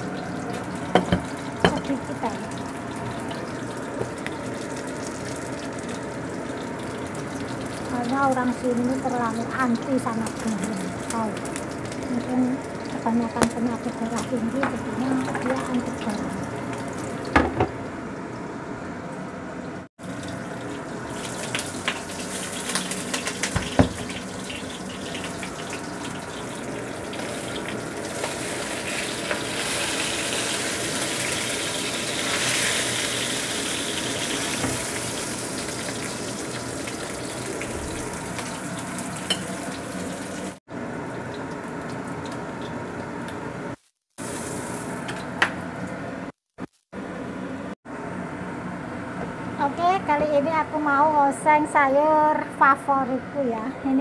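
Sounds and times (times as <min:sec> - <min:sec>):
fish sizzling in hot oil: 0:00.0 - 0:17.4, 0:20.0 - 0:45.4.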